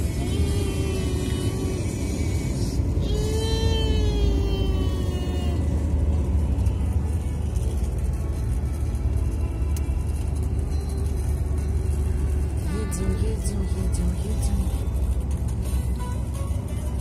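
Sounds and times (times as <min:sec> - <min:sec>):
car road and engine rumble: 0:00.0 - 0:17.0
music with held notes: 0:05.5 - 0:17.0.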